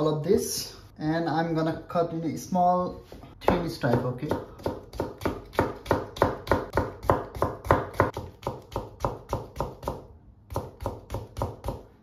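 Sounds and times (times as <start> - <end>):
knife chopping on plastic board: 3.0 - 12.0.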